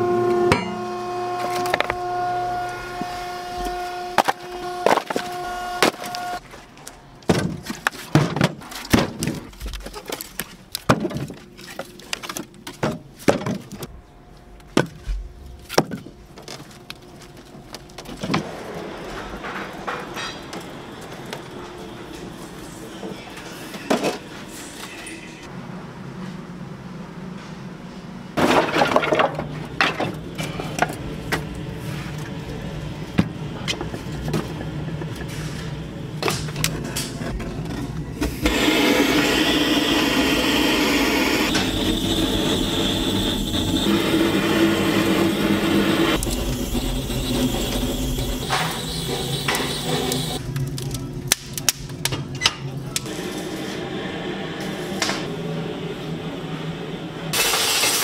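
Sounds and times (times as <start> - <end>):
wood fire rushing: 38.4 - 51.8.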